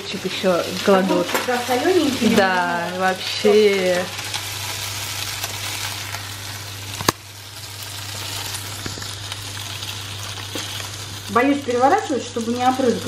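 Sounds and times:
meat sizzling in a pan: 0.0s - 13.0s
steady low hum: 0.0s - 13.0s.

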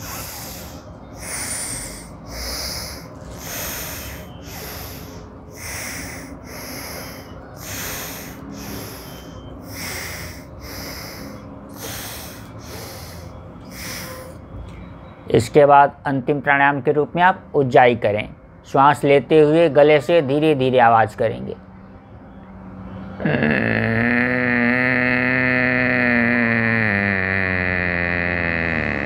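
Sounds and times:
person breathing through the nose: 0.0s - 14.4s.

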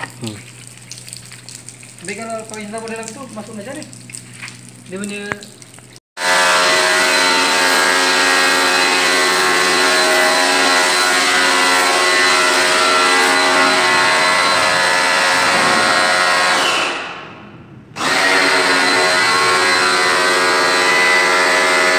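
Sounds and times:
water jet spraying: 0.0s - 6.0s, 7.0s - 17.2s, 18.0s - 21.8s
pressure washer motor running: 6.2s - 17.0s, 18.0s - 21.9s.

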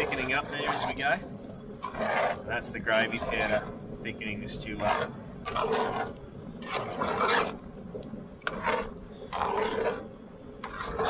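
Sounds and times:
metal spoon scraping pot: 10.6s - 11.0s.

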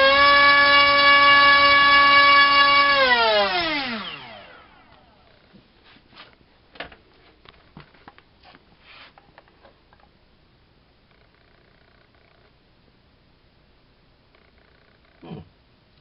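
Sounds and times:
motor whine spinning down: 0.0s - 5.4s.

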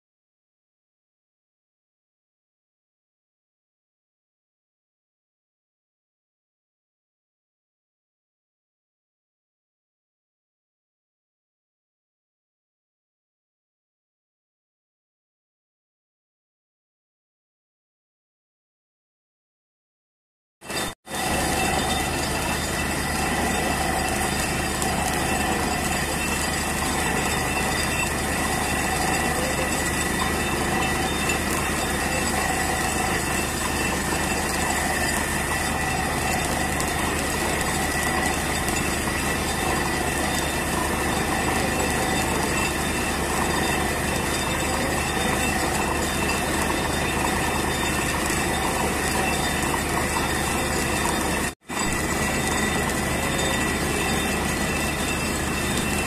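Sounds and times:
drilling rig running: 20.7s - 56.0s.

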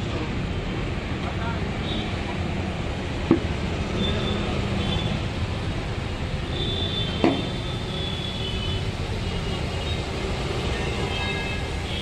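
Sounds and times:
sharp knock: 7.2s - 7.5s.

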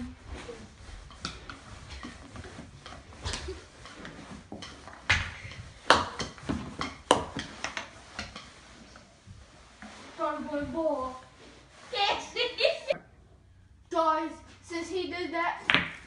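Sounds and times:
pool balls clicking and knocking: 0.0s - 13.2s, 15.5s - 16.0s
rustling on felt: 7.8s - 13.0s.

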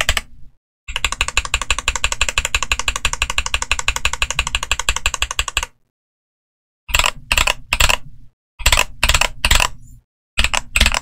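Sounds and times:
fast typing on mechanical keyboard: 0.0s - 0.3s, 0.9s - 5.8s, 6.9s - 8.0s, 8.6s - 9.8s, 10.4s - 11.0s.

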